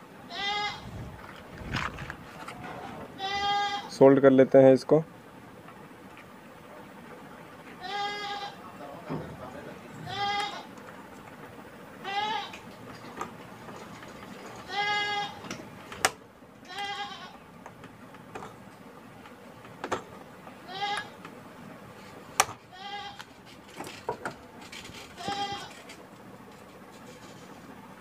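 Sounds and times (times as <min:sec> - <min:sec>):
goat bleating: 0:00.3 - 0:01.1, 0:02.6 - 0:03.9, 0:07.8 - 0:08.6, 0:09.9 - 0:10.7, 0:12.0 - 0:12.6, 0:14.6 - 0:15.4, 0:16.7 - 0:17.4, 0:20.6 - 0:21.2, 0:22.7 - 0:23.3, 0:25.1 - 0:25.9.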